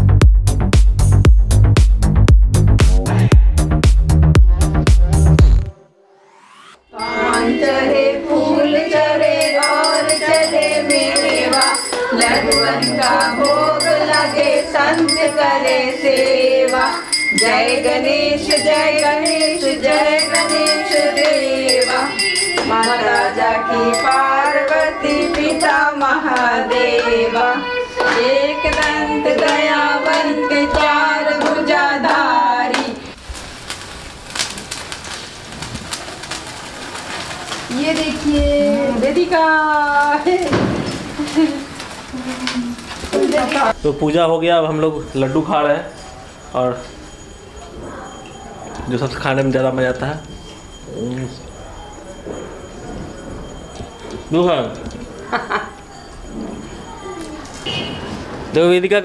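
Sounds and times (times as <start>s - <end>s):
jingling percussion: 6.9s - 32.4s, 36.2s - 57.7s
person singing devotional song: 7.0s - 33.2s
sparkler fizzing and crackling: 7.0s - 47.9s.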